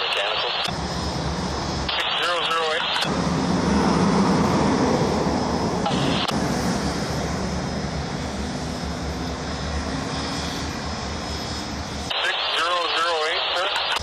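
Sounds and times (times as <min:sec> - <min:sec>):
low engine hum: 0:03.0 - 0:12.1.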